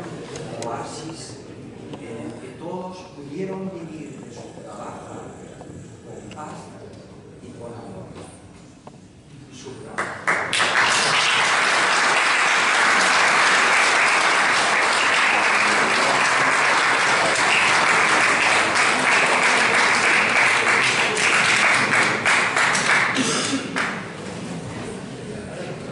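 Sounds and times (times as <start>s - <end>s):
audience applauding: 10.0s - 24.1s.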